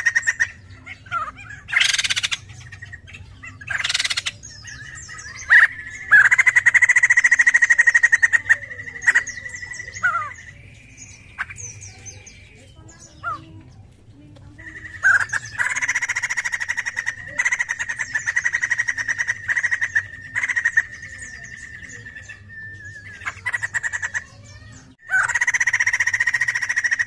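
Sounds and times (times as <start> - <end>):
bird chattering and trilling: 0.0 - 27.0
bird whistles: 17.8 - 24.1.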